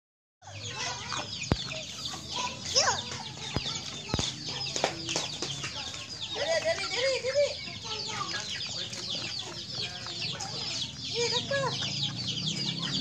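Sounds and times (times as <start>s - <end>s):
chickens clucking: 0.4s - 13.0s
high-pitched chirping: 0.5s - 4.6s.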